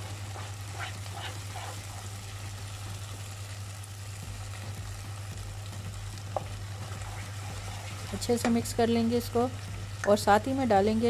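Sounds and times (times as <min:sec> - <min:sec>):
sauce sizzling in a pan: 0:00.0 - 0:11.0.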